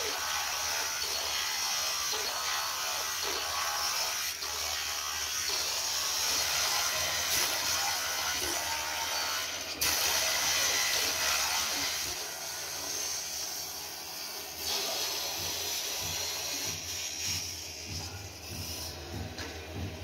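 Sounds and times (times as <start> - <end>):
tools rasping and grinding wood: 0.0 - 19.9.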